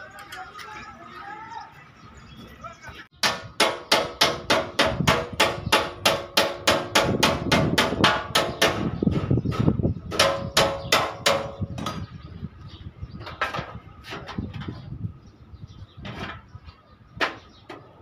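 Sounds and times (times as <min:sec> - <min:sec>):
hammer beating sheet metal: 0:03.2 - 0:12.0.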